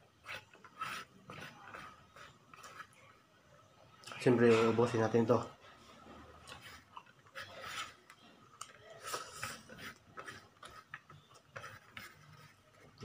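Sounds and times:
fingers scraping rice on ceramic plate: 0.2s - 3.0s.

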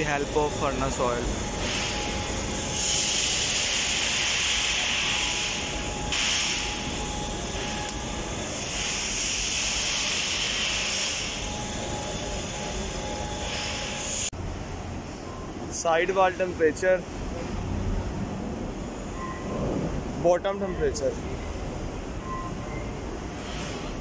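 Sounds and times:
oil burner roaring: 0.0s - 14.3s.

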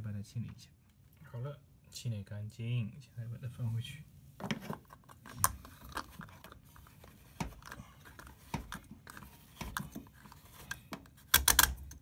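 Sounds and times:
plastic clicking and scraping: 4.4s - 12.0s.

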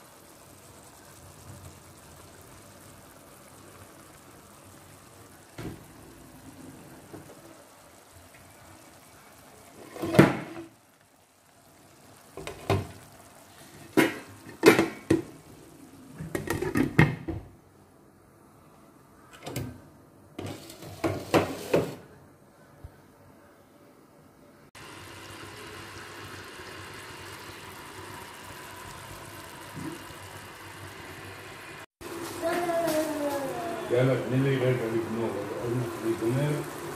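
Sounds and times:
sauce simmering hiss: 0.0s - 16.8s, 24.7s - 36.9s.

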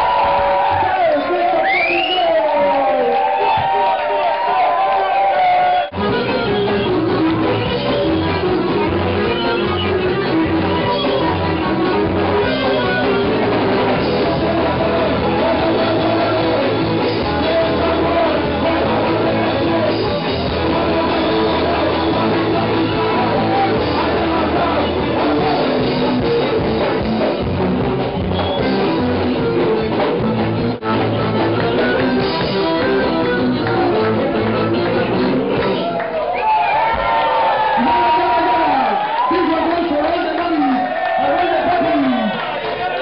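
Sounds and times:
electric guitar: 0.0s - 43.0s
drum kit: 5.8s - 37.2s
person singing: 11.1s - 26.4s.

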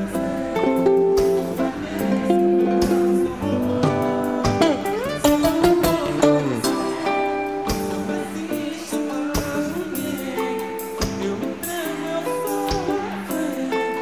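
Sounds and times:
live band music: 0.0s - 14.0s
person singing: 0.0s - 14.0s.

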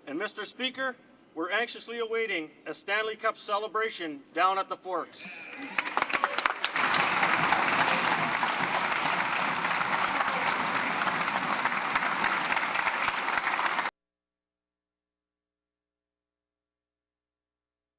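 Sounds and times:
crowd applauding: 5.5s - 13.9s.

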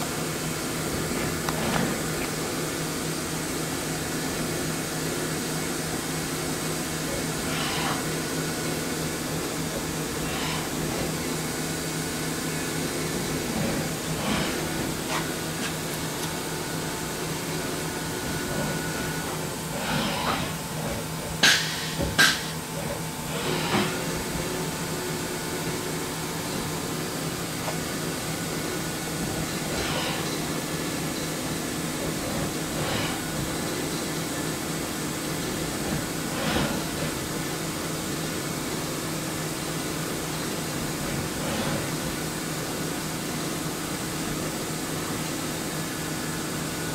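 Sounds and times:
stepper motor mechanical hum: 6.8s - 37.8s.

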